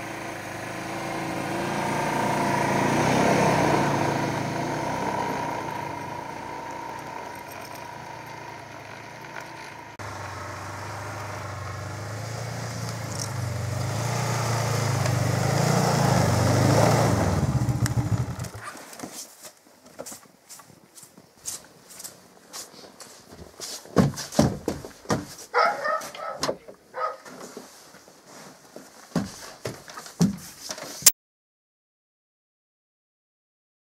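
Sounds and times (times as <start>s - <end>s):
snowmobile engine running: 0.0s - 18.6s.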